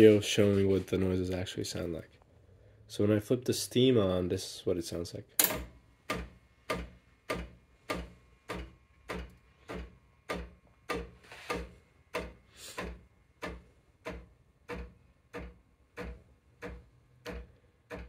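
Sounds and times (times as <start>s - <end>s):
espresso machine knocking: 5.4s - 18.0s.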